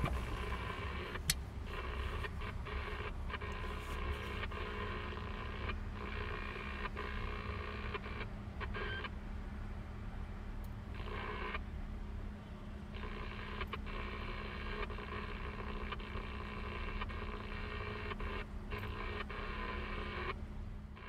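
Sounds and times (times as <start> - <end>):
radio static hiss: 0.0 - 9.1, 13.0 - 20.4
car engine rumble: 0.0 - 21.0
road noise: 0.0 - 21.0.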